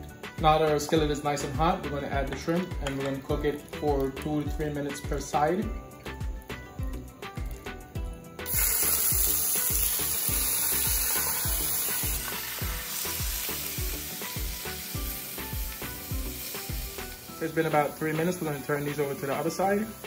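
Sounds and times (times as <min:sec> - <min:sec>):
background music with steady beat: 0:00.0 - 0:20.0
shrimp sizzling in a skillet: 0:08.4 - 0:20.0.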